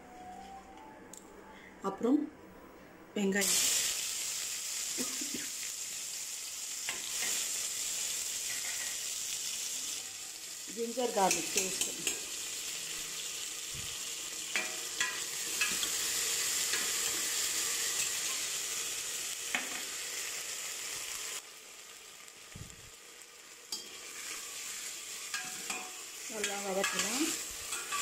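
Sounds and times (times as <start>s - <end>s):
food sizzling in hot oil: 3.4s - 28.0s
metal ladle clinking and scraping: 27.7s - 28.0s.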